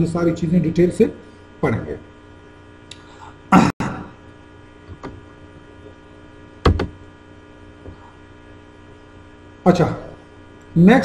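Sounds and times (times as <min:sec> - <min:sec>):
electrical mains hum: 0:00.0 - 0:11.0
sharp thump: 0:06.6 - 0:07.0.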